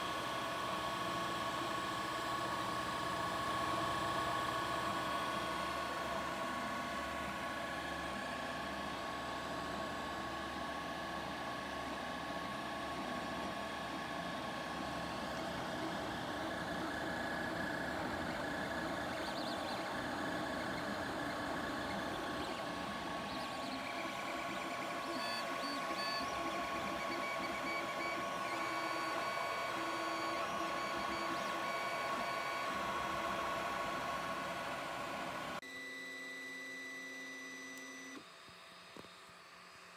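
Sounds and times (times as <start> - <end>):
cooling fans humming: 5.1 - 35.6.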